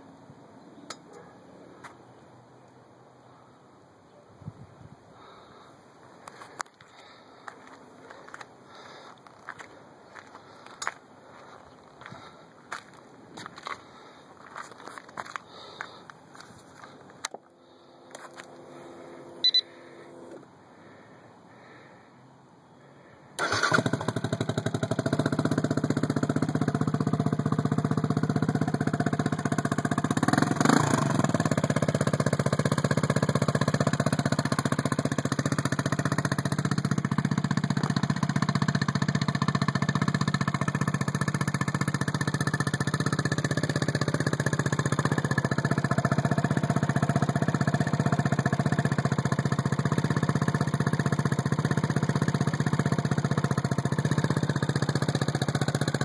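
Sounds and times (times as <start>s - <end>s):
engine revving: 23.4s - 36.2s.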